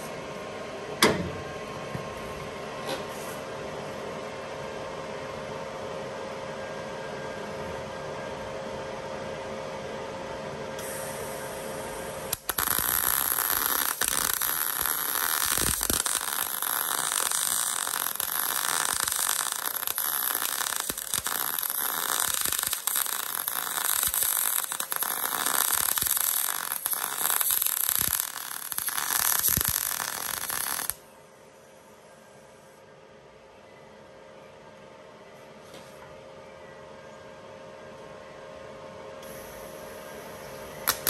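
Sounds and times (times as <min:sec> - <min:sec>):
steady hum: 0:00.0 - 0:41.0
welding arc crackling: 0:12.3 - 0:31.0.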